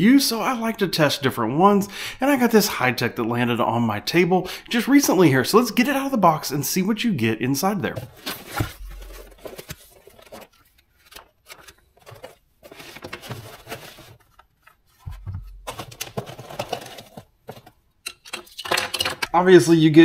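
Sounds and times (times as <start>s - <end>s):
cardboard packaging rustling: 7.8s - 19.2s.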